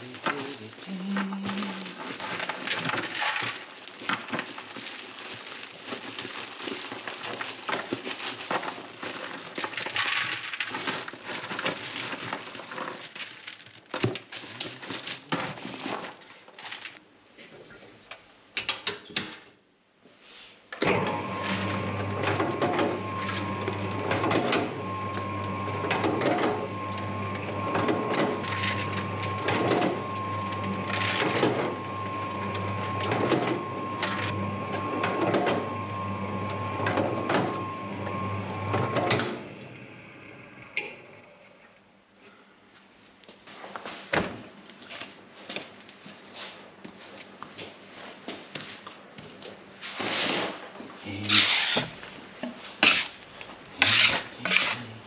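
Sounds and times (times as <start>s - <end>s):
bakery clattering and scraping: 0.1s - 18.0s, 53.8s - 55.0s
electric dough mixer running: 20.8s - 41.1s.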